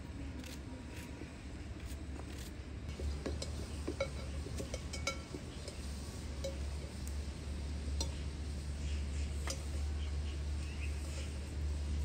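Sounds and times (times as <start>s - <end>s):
steady low hum: 0.0s - 12.0s
utensils clinking on metal pots: 2.9s - 7.0s.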